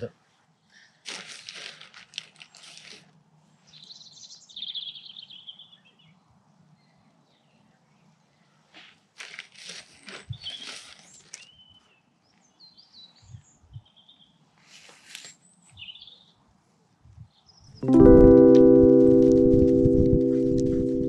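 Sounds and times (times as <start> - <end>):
hands scraping loose soil: 1.0 - 3.2, 8.7 - 11.6
small birds chirping: 3.6 - 8.8, 10.0 - 16.4.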